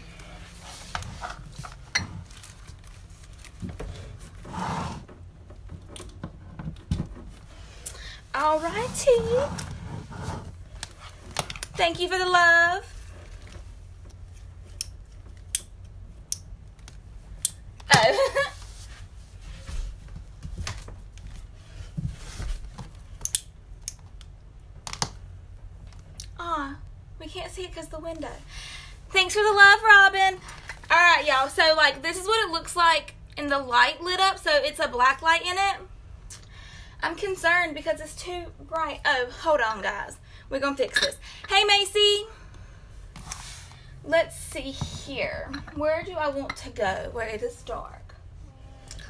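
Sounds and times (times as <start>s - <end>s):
low room hum: 0.0s - 49.0s
cord handling rustling: 0.5s - 4.5s.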